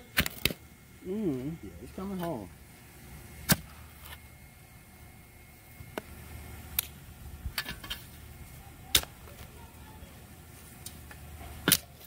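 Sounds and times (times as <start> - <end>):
spade chopping into soil: 3.5 - 3.7.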